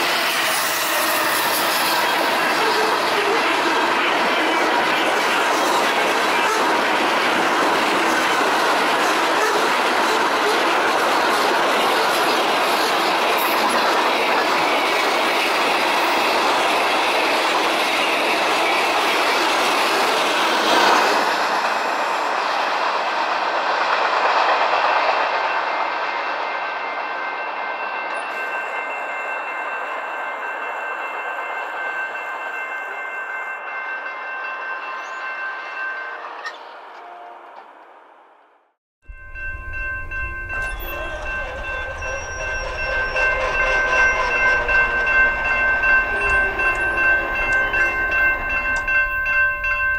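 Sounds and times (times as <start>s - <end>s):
train wheels on rails: 0.0s - 49.9s
crossing warning bell ringing: 24.6s - 37.7s, 39.1s - 49.9s.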